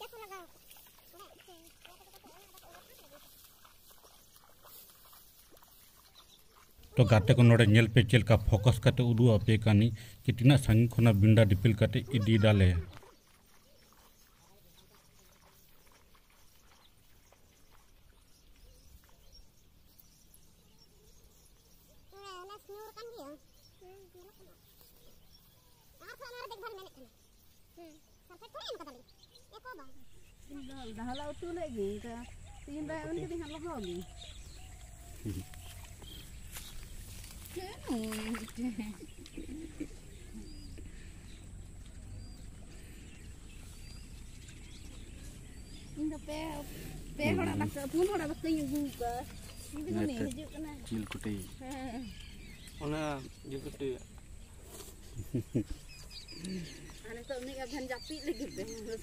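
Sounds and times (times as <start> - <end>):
faint bird chirps: 12.0 - 59.0.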